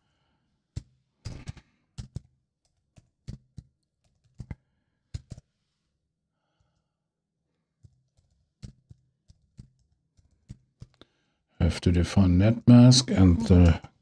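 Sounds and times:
keyboard typing: 1.3 - 4.6, 5.2 - 5.4, 7.8 - 11.0.

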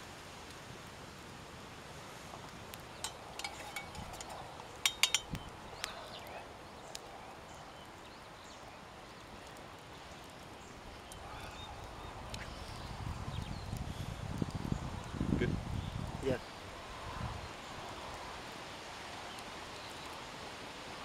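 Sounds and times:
metal cookware clicking and tapping: 3.0 - 5.4
ringing metallic clinks: 3.0 - 5.4.

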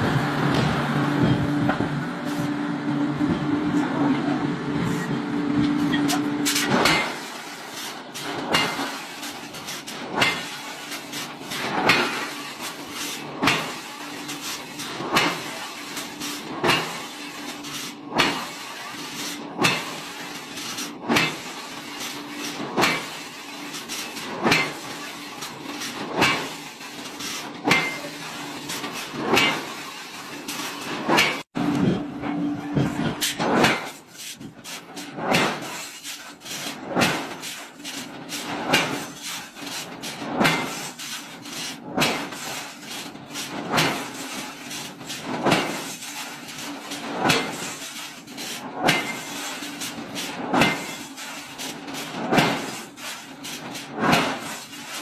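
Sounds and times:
steady mechanical noise: 0.0 - 55.0
forging machine knocking: 30.5 - 35.8, 43.2 - 45.9, 52.0 - 52.8.

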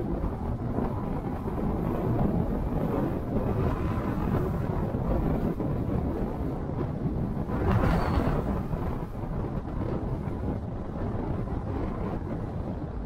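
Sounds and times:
car driving rumble: 0.3 - 13.0.

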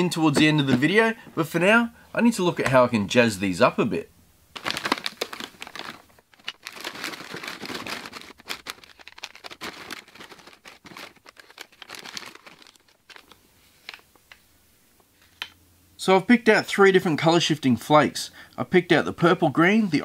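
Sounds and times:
plastic packets crinkling: 4.5 - 14.0.

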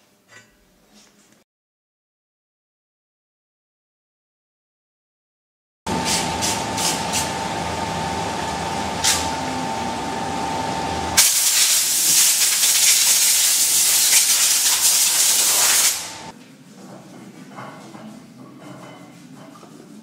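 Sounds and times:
steady hum with high tone: 5.9 - 12.3
compressed air hissing from hose: 9.0 - 9.3, 11.2 - 16.3.

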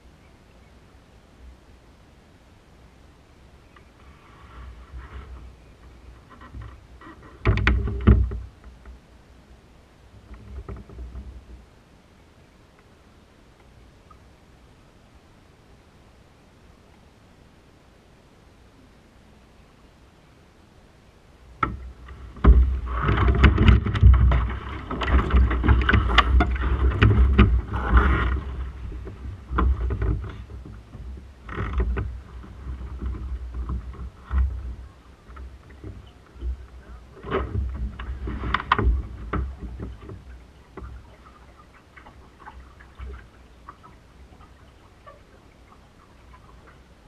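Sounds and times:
sharp knocks from boat: 6.2 - 9.0, 21.6 - 45.2
water washing along hull: 21.4 - 47.0.

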